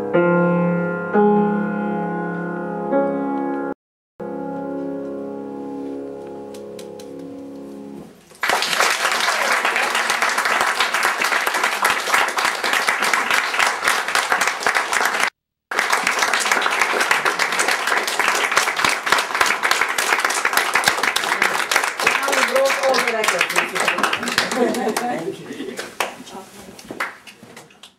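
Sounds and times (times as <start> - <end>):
grand piano chord: 0.0 - 8.2
audience applauding: 8.3 - 26.4, 27.0 - 27.9.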